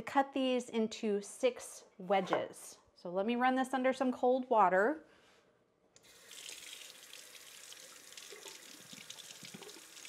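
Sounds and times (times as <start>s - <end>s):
tap water running over metal: 6.0s - 10.0s.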